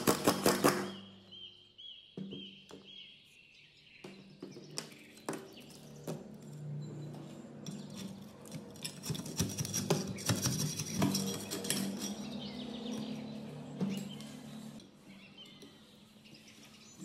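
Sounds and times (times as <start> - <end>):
metal blade scraping rust: 7.7 - 13.3.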